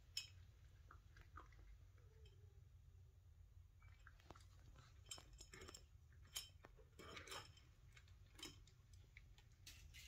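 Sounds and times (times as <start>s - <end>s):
cat crunching dry food: 4.0s - 10.0s.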